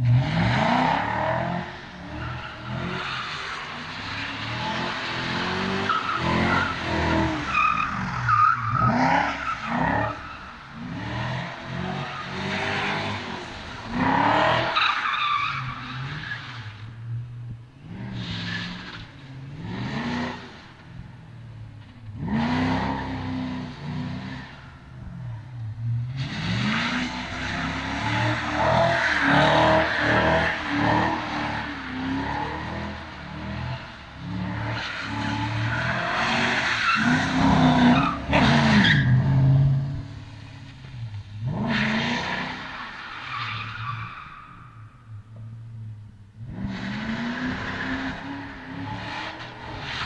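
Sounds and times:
car engine revving: 0.0s - 43.2s
tyres squealing and skidding: 0.2s - 17.2s, 17.9s - 20.8s, 26.1s - 45.2s.

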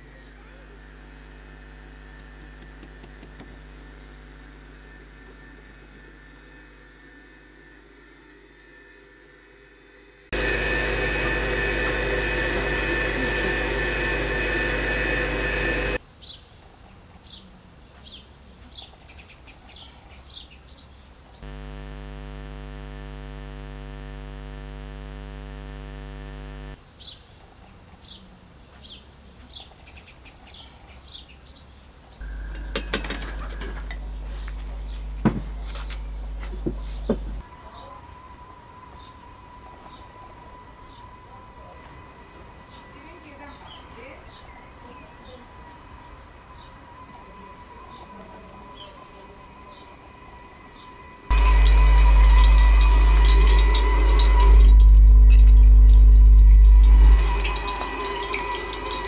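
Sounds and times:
stand mixer motor hum: 0.0s - 6.8s, 10.4s - 16.0s, 51.3s - 59.0s.

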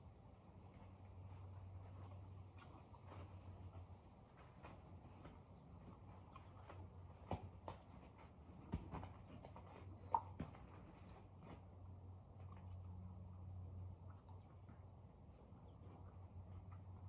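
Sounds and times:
low steady hum: 0.0s - 17.0s
horse hooves on gravel: 0.6s - 12.9s.

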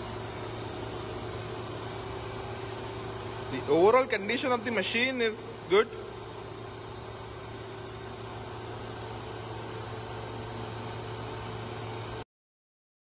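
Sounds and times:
grinder machine humming: 0.0s - 12.2s.

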